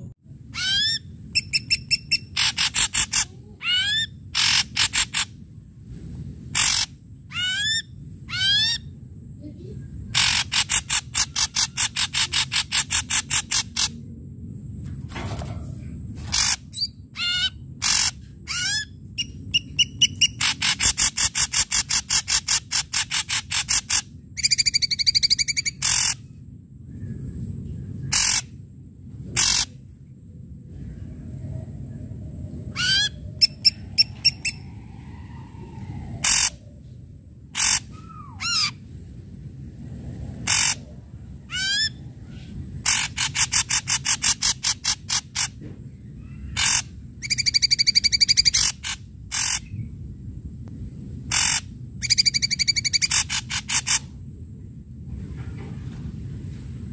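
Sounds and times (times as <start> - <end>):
bird harsh rattling calls: 0.6 - 5.4, 6.5 - 8.8, 10.1 - 14.0, 16.2 - 26.2, 28.1 - 28.5, 29.4 - 29.7, 36.2 - 36.6, 37.5 - 38.7, 40.4 - 40.9, 42.8 - 45.6, 46.4 - 49.8, 51.3 - 54.1
bird whistled rising notes: 32.7 - 36.6.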